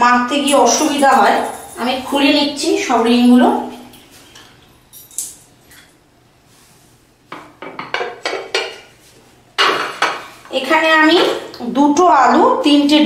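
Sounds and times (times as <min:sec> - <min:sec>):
utensils clinking against crockery: 0:00.5 - 0:02.6, 0:03.8 - 0:06.0.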